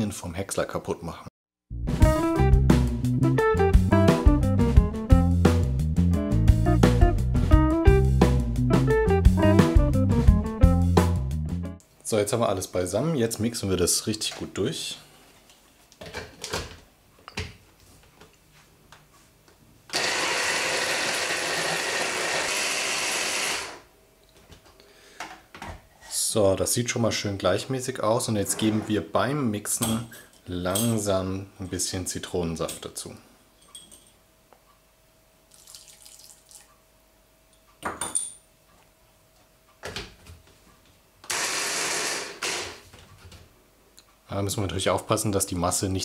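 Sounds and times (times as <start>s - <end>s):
hand blender motor running: 19.9s - 23.8s, 41.3s - 42.8s
liquid trickling into plastic bowl: 35.5s - 36.7s.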